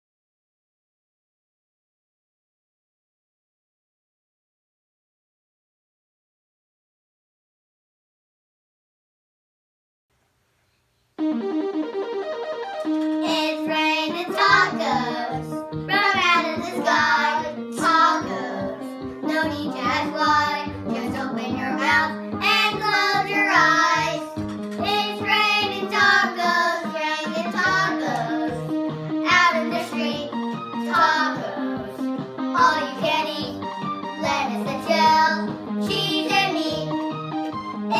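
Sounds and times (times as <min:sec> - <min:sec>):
children singing: 0:13.4 - 0:33.5
bouncing bass beat: 0:24.2 - 0:25.4.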